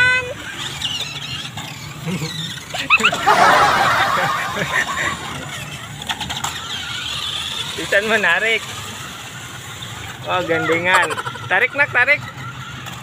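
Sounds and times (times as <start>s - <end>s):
indistinct chatter: 0.1s - 13.0s
child giggling: 2.1s - 5.7s.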